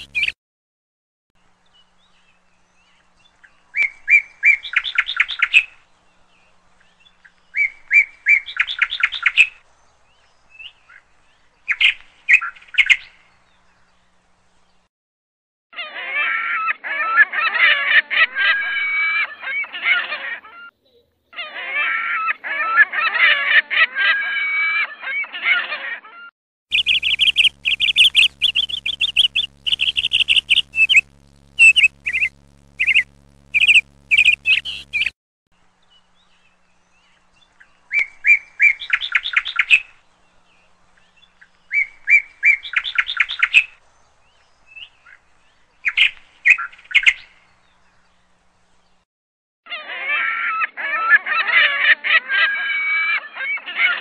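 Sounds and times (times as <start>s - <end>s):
birds calling: 0.0s - 0.4s, 26.7s - 35.2s.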